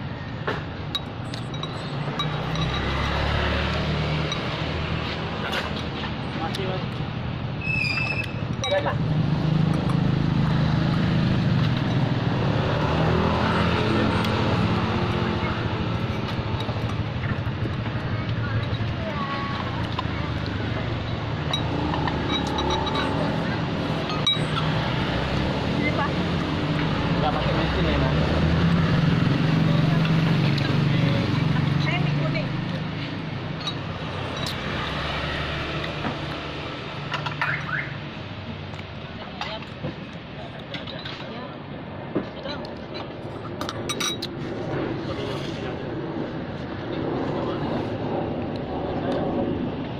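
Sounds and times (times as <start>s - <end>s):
vehicle engine humming: 0.0s - 40.7s.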